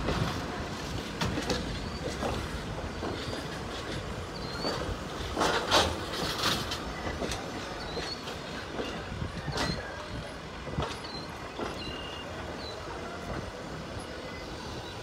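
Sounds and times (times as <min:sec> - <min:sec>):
train wheels clacking over rail joints: 0:00.0 - 0:15.0
wheel squeals: 0:01.4 - 0:13.0.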